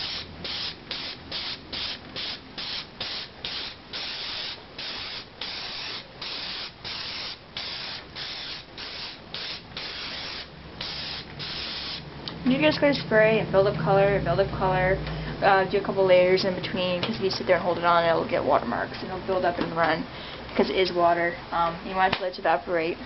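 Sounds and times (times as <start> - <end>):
airbrush spraying hiss: 0.0 - 12.1.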